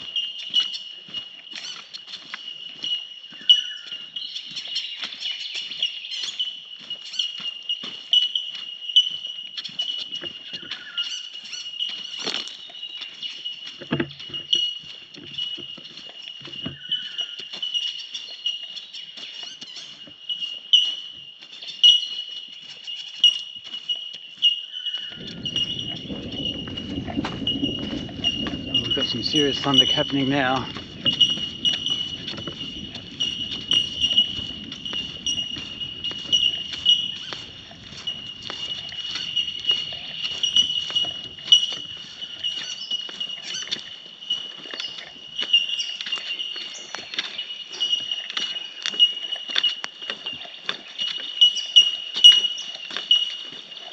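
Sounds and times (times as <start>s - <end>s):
birdsong chorus: 0.0s - 53.9s
light footsteps: 0.0s - 53.9s
thunder rumbling: 25.2s - 41.6s
light patters and clicks: 25.2s - 42.4s.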